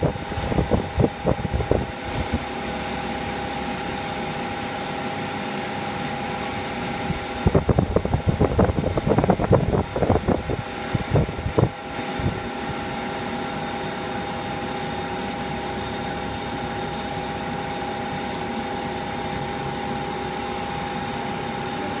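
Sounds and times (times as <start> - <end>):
extraction fans hum and whine: 0.0 - 22.0
paint spray gun hiss: 8.2 - 11.2, 15.1 - 17.5.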